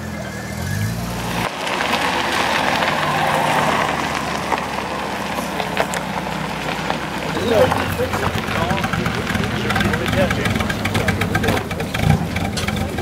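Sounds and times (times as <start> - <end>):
low engine hum: 0.0 - 13.0
tyres crunching over gravel: 0.0 - 13.0.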